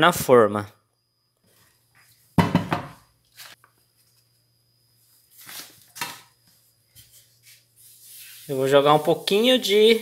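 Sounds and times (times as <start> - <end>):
bowl knocking: 2.4 - 3.0.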